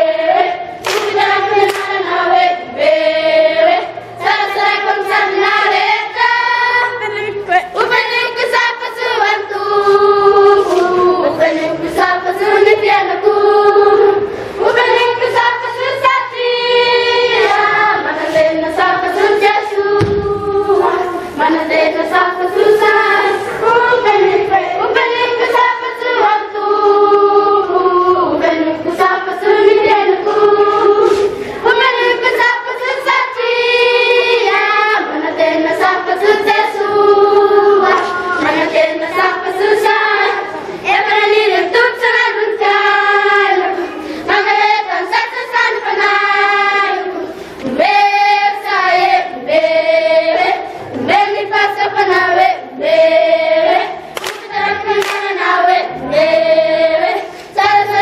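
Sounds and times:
children singing together: 0.0 - 58.0.

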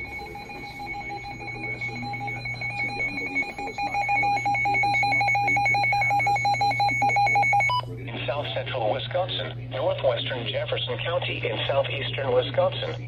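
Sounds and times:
rapid electronic alarm beeping: 0.0 - 7.8.

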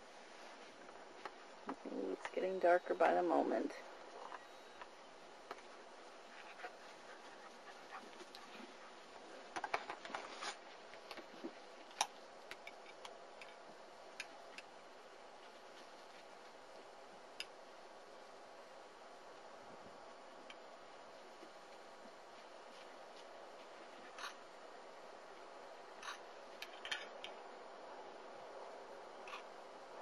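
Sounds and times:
puppies scuffling on grass: 5.1 - 12.3, 14.9 - 17.2, 20.8 - 24.8.

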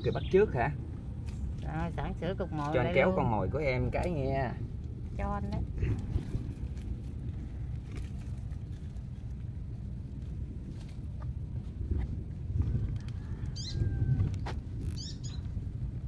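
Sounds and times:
wind on microphone: 0.0 - 16.0
high bird chirps: 15.0 - 15.4.

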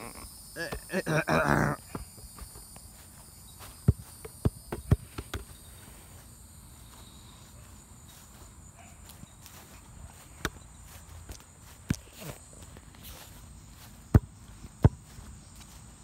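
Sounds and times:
insects trilling: 0.0 - 16.0
dull footstep thumps: 1.9 - 5.5, 9.6 - 15.9.

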